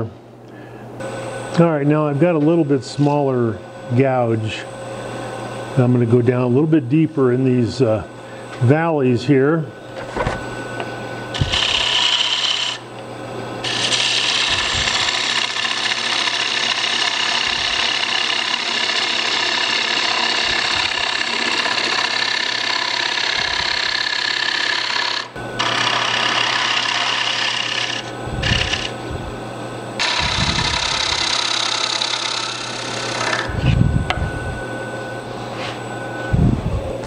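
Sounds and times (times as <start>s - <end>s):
lathe humming: 1.0s - 37.0s
gouge cutting wood: 11.3s - 12.8s, 13.6s - 29.0s, 30.0s - 33.5s.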